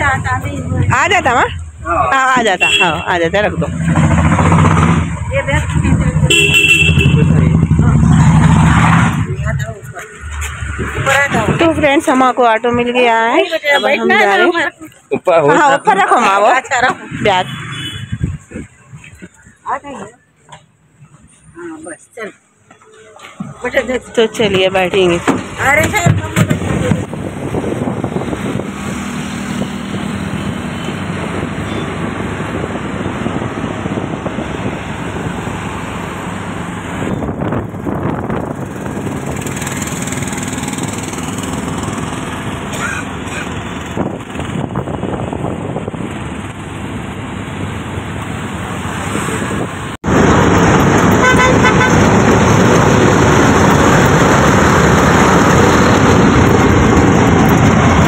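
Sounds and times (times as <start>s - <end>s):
road and wind noise: 0.0s - 58.0s
horns honking: 2.1s - 3.9s, 6.1s - 7.8s, 13.2s - 14.7s, 16.7s - 19.0s, 30.4s - 32.2s, 51.0s - 52.6s.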